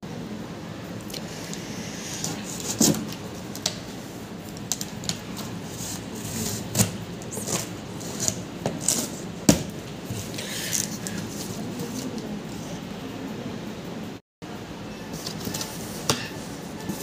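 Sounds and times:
cardboard rustling: 0:02.2 - 0:03.8, 0:04.6 - 0:12.3
knife cutting packing tape: 0:04.7 - 0:09.7.

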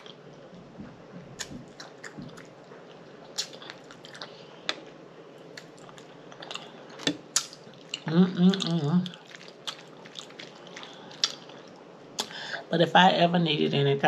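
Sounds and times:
person chewing and lip smacking: 0:01.2 - 0:12.4.

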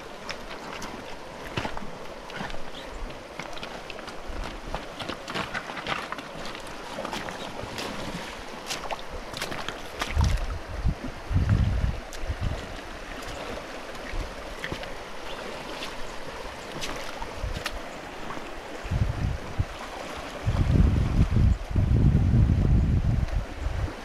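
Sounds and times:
water rushing over stones: 0:00.0 - 0:24.0
wind buffeting microphone: 0:10.0 - 0:13.4, 0:17.2 - 0:17.9, 0:18.7 - 0:24.0.

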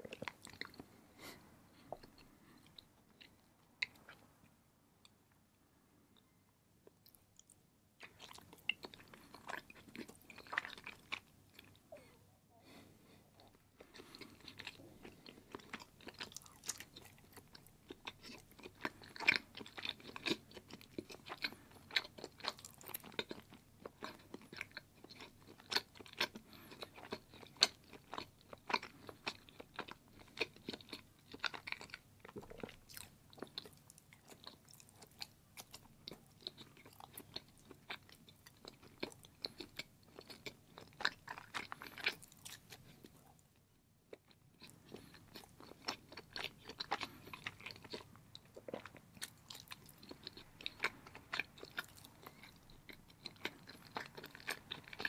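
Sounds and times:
person chewing cheese: 0:00.0 - 0:05.2, 0:06.2 - 0:55.0.

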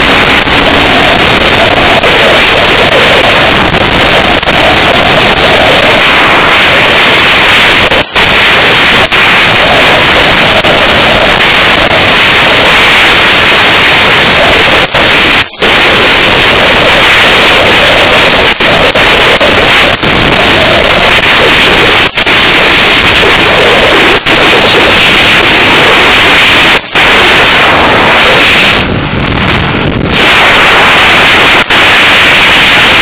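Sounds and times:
wind rushing over microphone: 0:17.6 - 0:33.0.

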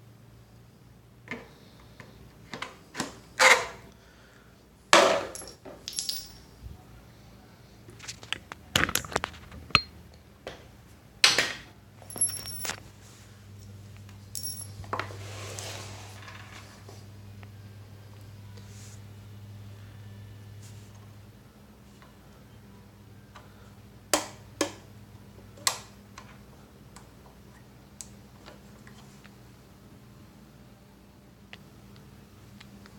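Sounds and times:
plastic parts knocking and clattering: 0:08.1 - 0:09.9.

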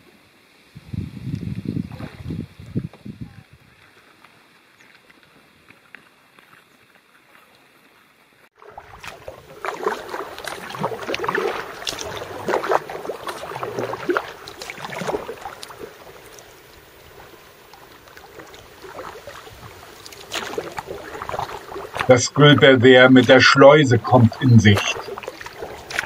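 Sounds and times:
paddle splashing through water: 0:01.7 - 0:05.2, 0:07.2 - 0:26.0
water dripping off paddle: 0:08.6 - 0:26.0.

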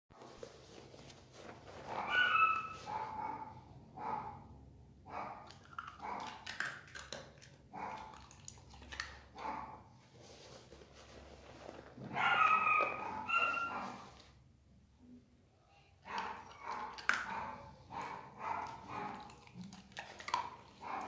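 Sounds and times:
puppies whining and yipping: 0:02.0 - 0:02.9, 0:12.1 - 0:14.1.

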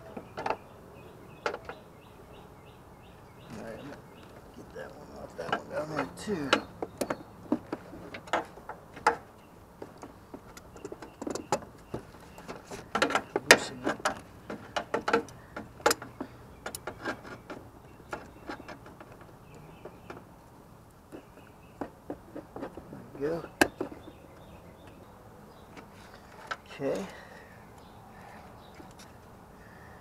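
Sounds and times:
hand tools clicking and knocking: 0:04.3 - 0:20.3, 0:21.1 - 0:24.2.

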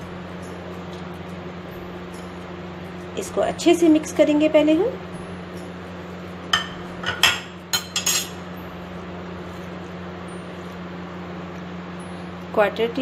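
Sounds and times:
low background hum: 0:00.0 - 0:13.0
glass containers clinking: 0:06.5 - 0:08.4.

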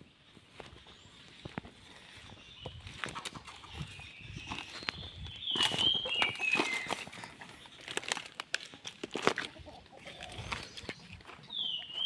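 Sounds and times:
footsteps crunching on dry leaves: 0:00.2 - 0:12.0
bird whistling: 0:04.0 - 0:07.0.

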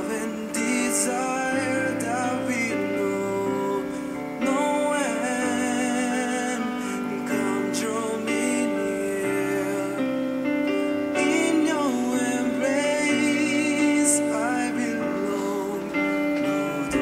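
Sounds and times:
slow melody over sustained chords: 0:00.0 - 0:17.0.

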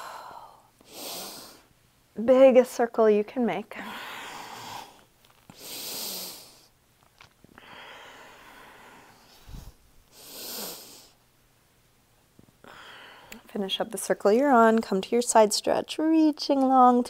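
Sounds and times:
woman breathing: 0:00.0 - 0:01.7, 0:03.7 - 0:06.8, 0:07.5 - 0:11.2, 0:12.6 - 0:13.5.

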